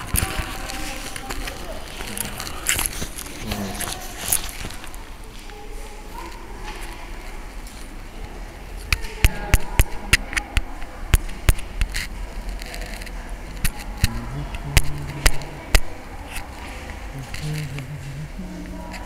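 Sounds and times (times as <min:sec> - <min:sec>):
low hum of stepped notes: 0:14.0 - 0:15.9, 0:17.1 - 0:19.0.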